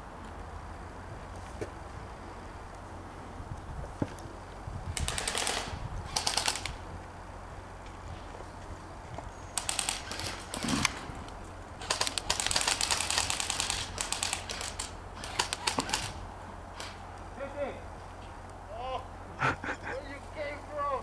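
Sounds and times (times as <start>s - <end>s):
airsoft guns firing bursts: 5.0s - 6.8s, 9.6s - 11.0s, 11.8s - 16.2s.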